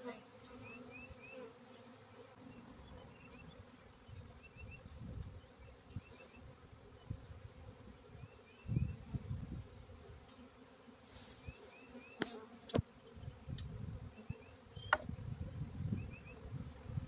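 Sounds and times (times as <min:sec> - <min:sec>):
honeybees buzzing: 0:00.0 - 0:17.0.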